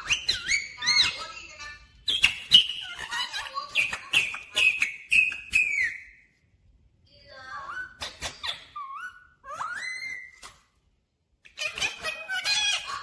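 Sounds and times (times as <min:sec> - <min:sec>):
parakeet whistling: 0:00.0 - 0:01.4, 0:02.0 - 0:06.2, 0:07.6 - 0:10.5.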